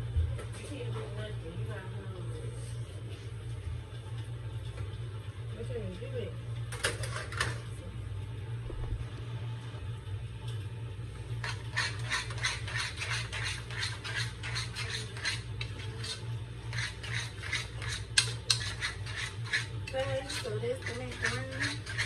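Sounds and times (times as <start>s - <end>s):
utensil scraping cooking pot: 11.3s - 22.0s.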